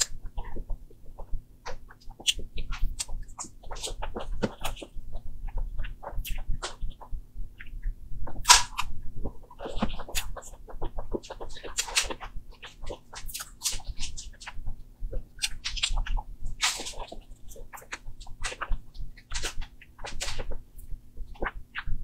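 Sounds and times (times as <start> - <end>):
wet mouth eating sounds: 8.4 - 14.5.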